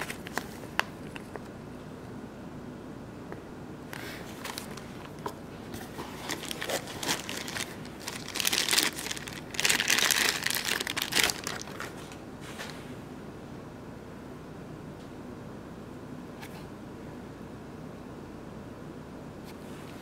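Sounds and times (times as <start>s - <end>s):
plastic bag crinkling: 0.0s - 1.4s, 4.0s - 12.2s.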